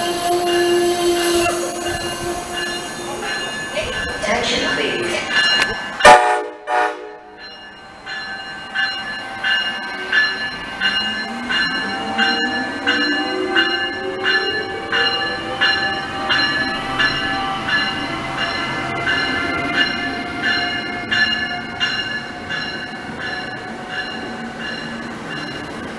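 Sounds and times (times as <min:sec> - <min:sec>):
locomotive bell ringing: 0:00.0 - 0:25.9.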